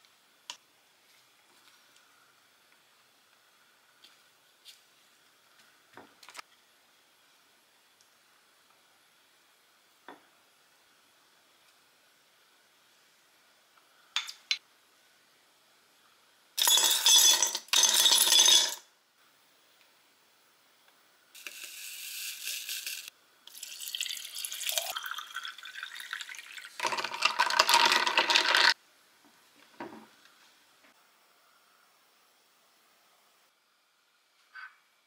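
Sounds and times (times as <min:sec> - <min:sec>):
ice cubes clattering into glass jar: 0:16.6 - 0:18.8, 0:26.7 - 0:28.8
water pouring over ice: 0:21.9 - 0:28.8
ice rattling while stirring: 0:26.7 - 0:28.8.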